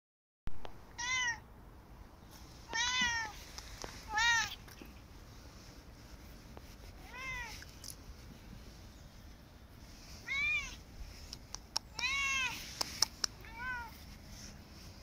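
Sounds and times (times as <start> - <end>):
cat meowing: 1.0 - 1.4, 2.7 - 3.4, 4.1 - 4.6, 7.0 - 7.6, 10.2 - 10.8, 11.9 - 12.6, 13.4 - 14.0.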